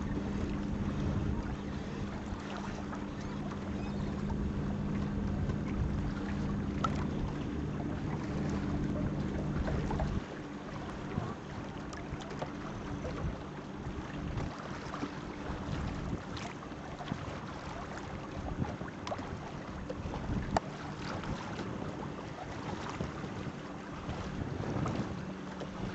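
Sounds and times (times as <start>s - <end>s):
steady low hum: 0.0s - 16.2s
water splashing against boat hull: 0.0s - 25.9s
wind buffeting microphone: 0.0s - 25.9s.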